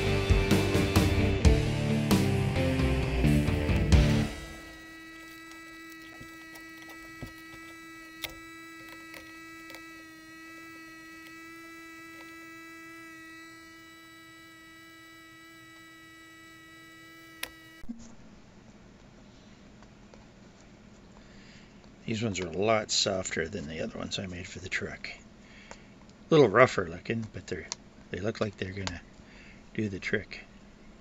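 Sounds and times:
printer humming with fan whine: 0:02.6 - 0:18.6.

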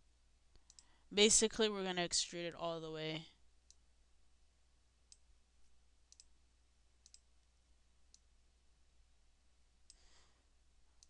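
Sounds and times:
faint low hum: 0:00.0 - 0:11.0
computer mouse clicks: 0:00.5 - 0:01.0, 0:06.1 - 0:06.3, 0:07.0 - 0:07.3, 0:09.9 - 0:10.1.

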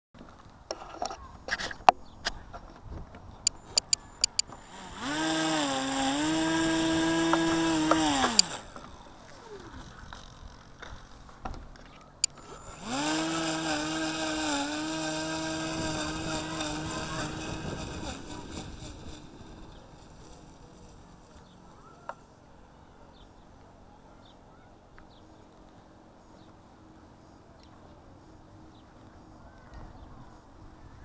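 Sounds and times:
sharp clicks: 0:03.5 - 0:05.1, 0:07.3 - 0:08.6, 0:12.2 - 0:12.6
electric model plane motor whine: 0:03.5 - 0:22.4.

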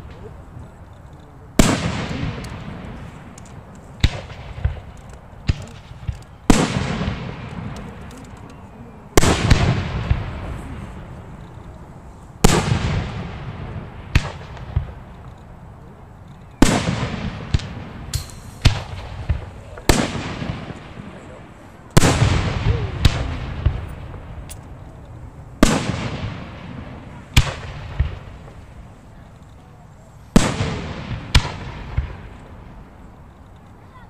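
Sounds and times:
firework booms: 0:01.6 - 0:03.4, 0:04.0 - 0:08.0, 0:09.2 - 0:11.3, 0:12.4 - 0:15.2, 0:16.6 - 0:24.8, 0:25.6 - 0:29.1, 0:30.3 - 0:33.0
sharp firework cracks: 0:01.6 - 0:08.2, 0:09.2 - 0:11.2, 0:12.4 - 0:15.3, 0:16.6 - 0:21.3, 0:21.9 - 0:29.4, 0:30.3 - 0:33.9.

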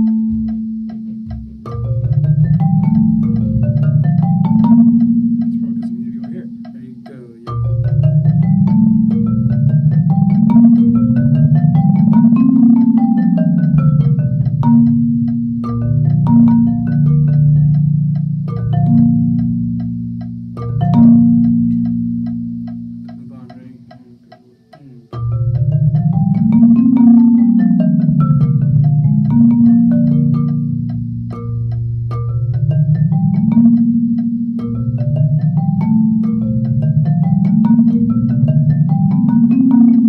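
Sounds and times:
marimba played with yarn mallets: 0:00.0 - 0:40.0.

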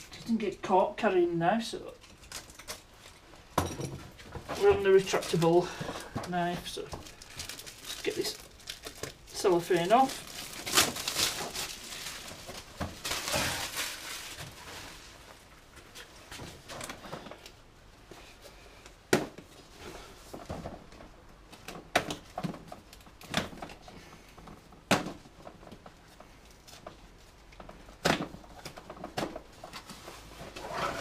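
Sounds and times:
cellophane crinkling and tearing: 0:06.3 - 0:15.5.

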